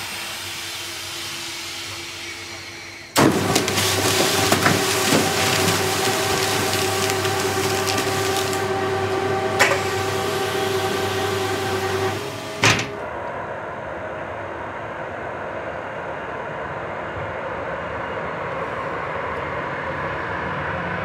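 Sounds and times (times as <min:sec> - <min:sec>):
conveyor belt humming: 0:00.0 - 0:21.0
metal shutter thump: 0:12.5 - 0:13.0.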